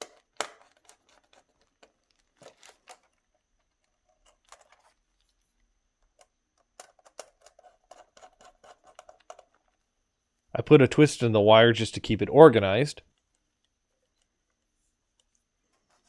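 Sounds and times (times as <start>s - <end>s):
screwdriver clicks and scratches: 6.2s - 9.6s.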